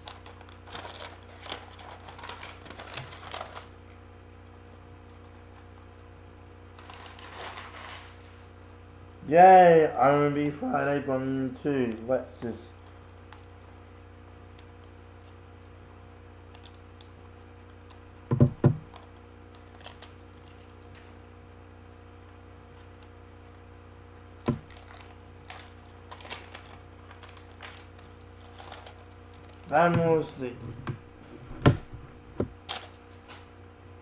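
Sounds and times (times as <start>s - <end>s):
plastic case clicking and knocking: 18.3s - 18.9s, 29.9s - 32.6s.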